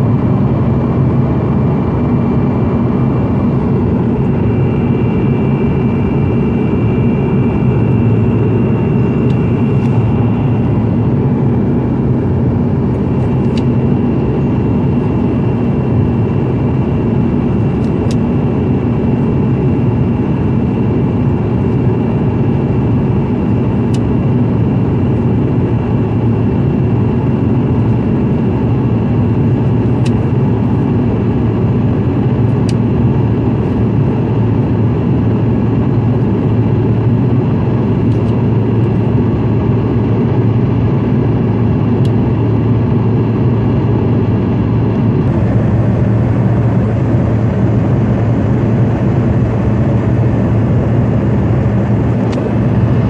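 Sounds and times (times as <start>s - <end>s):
jet engine and airflow roar: 0.0s - 53.0s
faint high whine: 1.5s - 16.8s, 44.8s - 53.0s.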